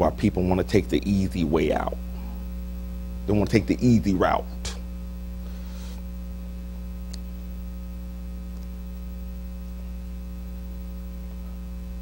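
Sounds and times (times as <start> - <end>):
electrical mains hum: 0.0 - 12.0
faint click: 7.1 - 7.3.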